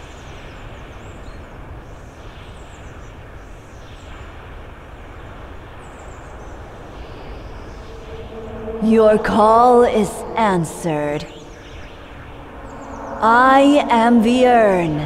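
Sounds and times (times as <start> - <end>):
wind-like rushing noise: 0.0 - 15.0
distant birds chirping: 5.0 - 15.0.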